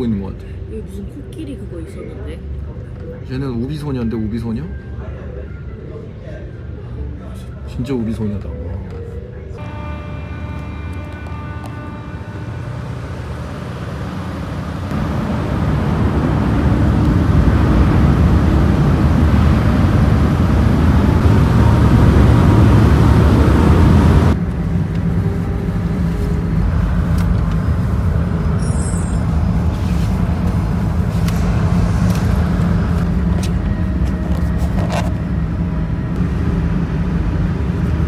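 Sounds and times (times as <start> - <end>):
ferry engine rumble: 0.0 - 38.0.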